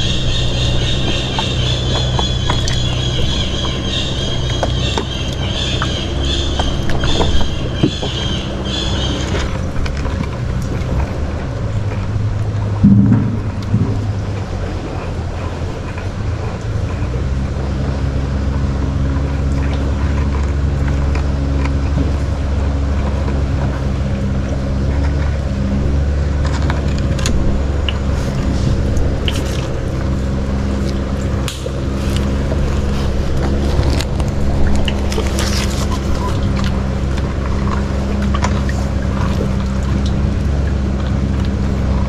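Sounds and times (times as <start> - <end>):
boat engine running: 0.0 - 42.0
water splashes: 0.0 - 42.0.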